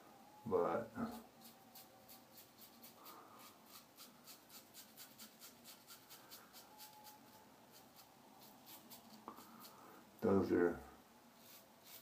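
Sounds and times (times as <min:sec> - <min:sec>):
razor scraping stubble: 0:01.0 - 0:09.8, 0:11.4 - 0:12.0.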